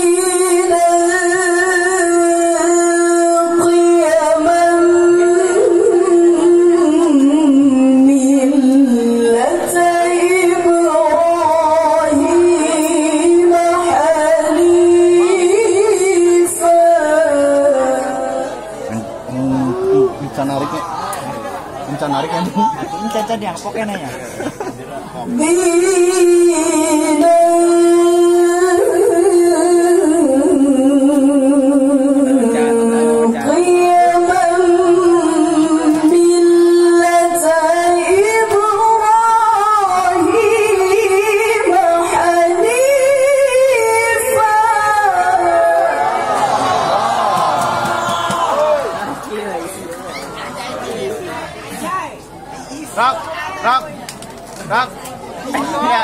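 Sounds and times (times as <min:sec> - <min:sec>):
woman chanting over loudspeaker: 0:00.0 - 0:20.2, 0:25.3 - 0:46.3.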